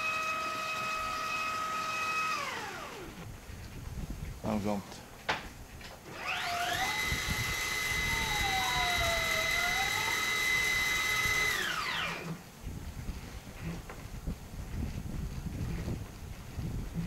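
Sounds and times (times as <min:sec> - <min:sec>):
sliding door motor whining: 0:00.0 - 0:03.2, 0:06.0 - 0:12.4.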